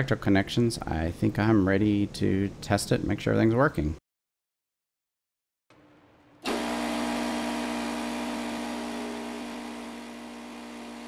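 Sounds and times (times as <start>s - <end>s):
air compressor running: 6.4s - 11.0s.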